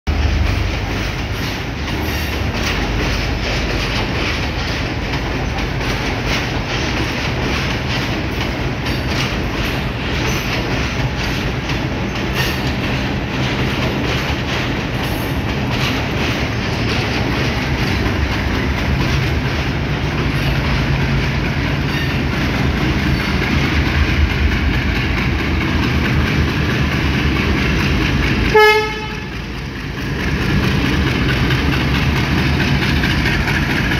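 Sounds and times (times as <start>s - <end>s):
diesel locomotive drone: 0.1s - 33.9s
train horn: 28.5s - 29.4s.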